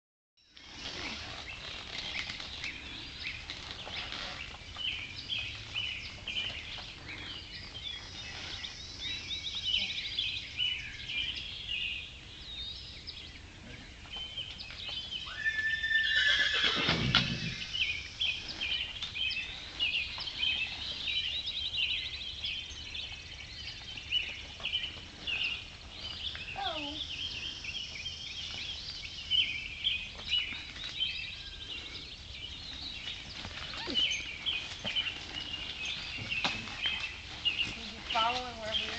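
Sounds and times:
horse whinnying: 15.2s - 17.7s.

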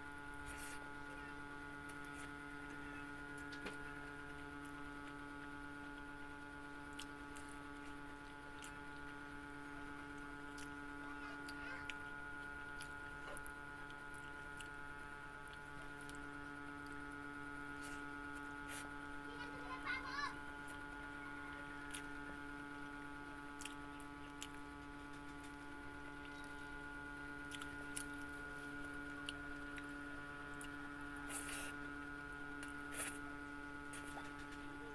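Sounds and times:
electrical mains hum: 0.0s - 34.9s
chewing clicks: 23.6s - 25.6s.

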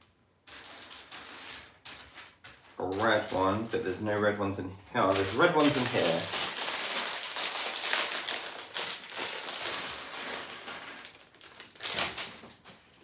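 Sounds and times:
plastic bag crinkling: 2.0s - 4.2s, 5.0s - 12.9s.

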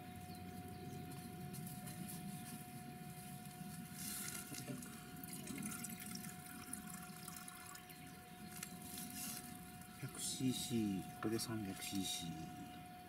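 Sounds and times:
water pouring into metal tin: 4.5s - 7.9s.

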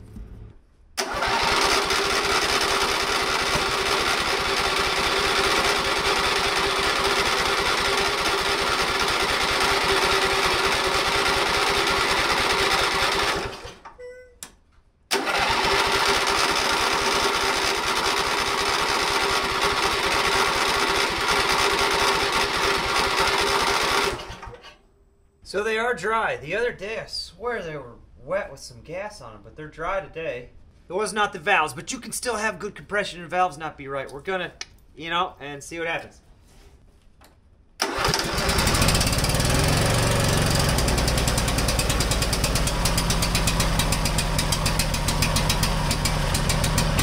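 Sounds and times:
lawn tractor engine running: 0.0s - 13.9s, 15.1s - 24.6s, 37.8s - 47.0s.

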